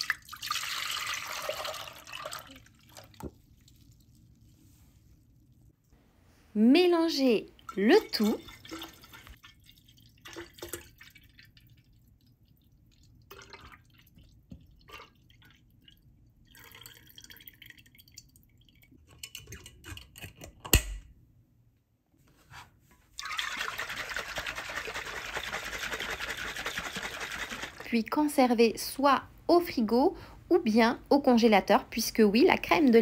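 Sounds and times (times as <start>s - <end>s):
liquid pouring into glass jar: 0.0s - 4.4s, 7.6s - 20.2s, 23.2s - 27.9s
liquid sloshing in jar: 0.0s - 5.6s, 7.5s - 20.6s, 23.2s - 28.0s.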